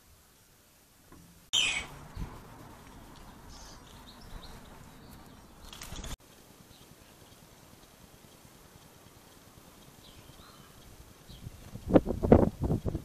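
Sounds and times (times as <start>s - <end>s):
faint bird chirps: 1.5s - 2.0s, 3.0s - 11.6s
loud rustle: 2.0s - 6.2s.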